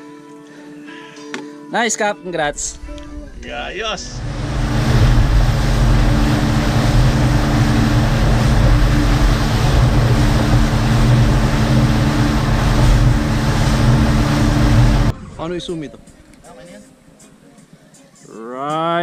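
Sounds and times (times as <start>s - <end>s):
rushing wind and water: 2.8s - 16.0s
motorboat engine drone: 4.0s - 15.1s.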